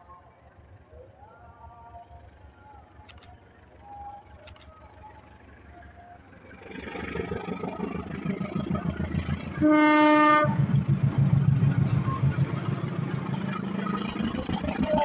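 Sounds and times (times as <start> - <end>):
locomotive engine and wheels: 0.0 - 15.0
train horn blast: 9.5 - 10.8.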